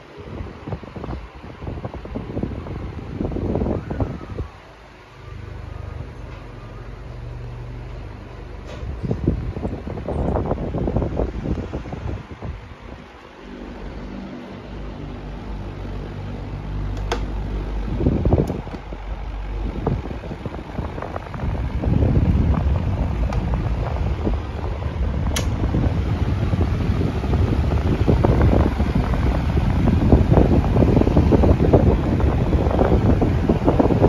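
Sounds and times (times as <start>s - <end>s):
air buffeting microphone: 0.0s - 34.0s
fan motor hum: 0.0s - 34.0s
fan control knob clicks: 16.9s - 17.4s, 25.2s - 25.7s.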